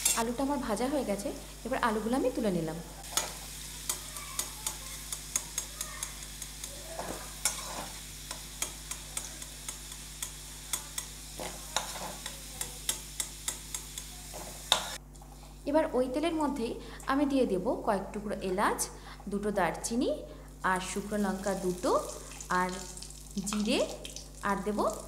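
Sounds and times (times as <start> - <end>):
metal spatula scraping a pan: 0.0 - 0.2, 7.0 - 9.5, 11.7 - 12.4
oil sizzling in a wok: 0.0 - 15.6, 20.4 - 25.0.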